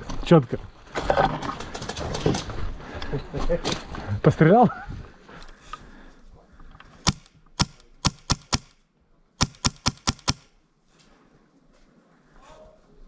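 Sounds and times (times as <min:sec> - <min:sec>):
airsoft rifle shots: 0:07.0 - 0:08.8, 0:09.4 - 0:10.5.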